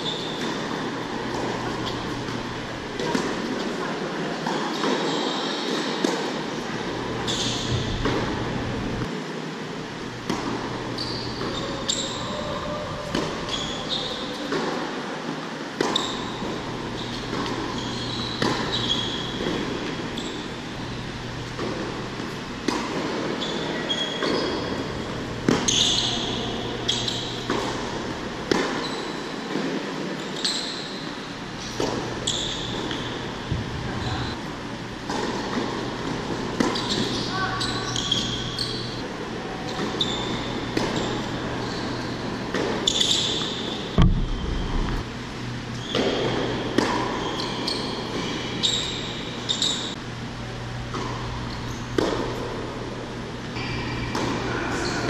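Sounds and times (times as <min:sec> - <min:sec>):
tennis shoes squeaking: 0:00.0 - 0:03.8, 0:04.4 - 0:06.3, 0:06.9 - 0:09.0, 0:10.3 - 0:14.6, 0:15.8 - 0:29.6, 0:30.2 - 0:34.5, 0:35.1 - 0:50.0, 0:50.9 - 0:52.2
steady low hum: 0:00.0 - 0:04.3, 0:06.2 - 0:14.4, 0:15.0 - 0:30.2, 0:30.9 - 0:55.0
racquet striking tennis ball: 0:00.3 - 0:03.8, 0:07.5 - 0:08.7, 0:15.8 - 0:20.2, 0:21.5 - 0:23.4, 0:24.0 - 0:29.8, 0:40.6 - 0:41.3, 0:42.5 - 0:45.1, 0:45.9 - 0:49.2, 0:51.9 - 0:52.5
tennis ball bouncing: 0:03.0 - 0:03.7, 0:07.4 - 0:08.9, 0:18.3 - 0:20.0, 0:21.4 - 0:23.3, 0:23.9 - 0:29.7, 0:40.7 - 0:41.2, 0:45.8 - 0:49.2, 0:51.9 - 0:52.4, 0:54.1 - 0:54.4.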